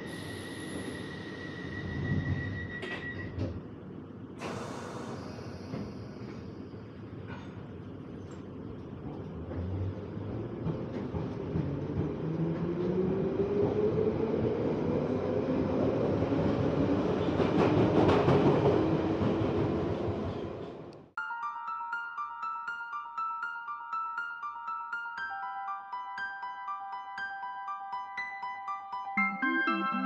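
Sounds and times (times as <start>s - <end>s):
train rumble: 0.0s - 21.0s.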